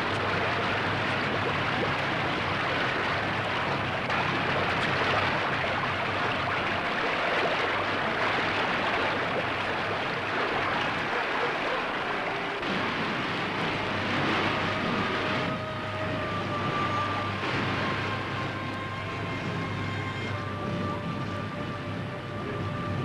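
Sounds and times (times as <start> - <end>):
fast-flowing water rushing: 0.0 - 23.0.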